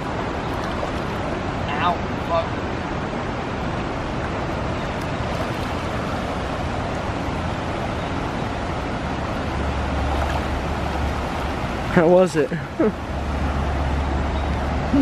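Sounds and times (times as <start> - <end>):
wind rumble on microphone: 0.0 - 12.0
river flowing over rocks: 0.0 - 15.0.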